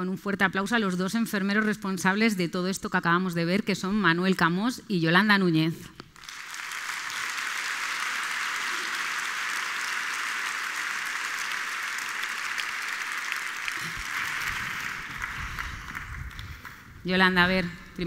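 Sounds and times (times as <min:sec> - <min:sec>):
large audience applauding: 0:06.2 - 0:16.9.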